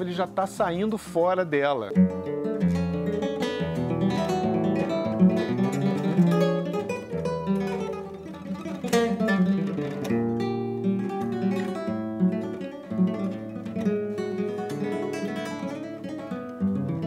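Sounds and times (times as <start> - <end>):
fingerstyle classical guitar: 0.0 - 17.0.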